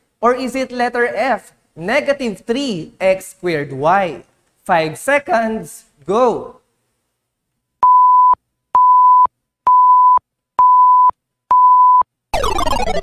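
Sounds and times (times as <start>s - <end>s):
electronic beeps: 7.8s - 13.0s
falling sound effect: 12.4s - 13.0s.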